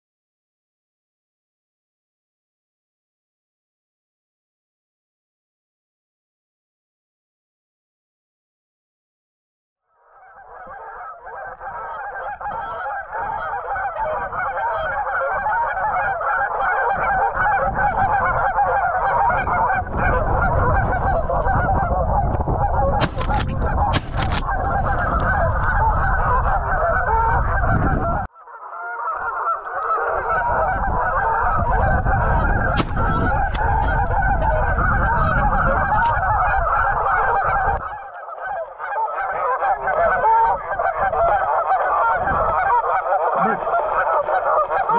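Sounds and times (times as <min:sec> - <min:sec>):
geese honking: 0:10.0 - 0:44.9
wind rumble on microphone: 0:10.6 - 0:28.3, 0:29.9 - 0:38.0, 0:39.3 - 0:44.9.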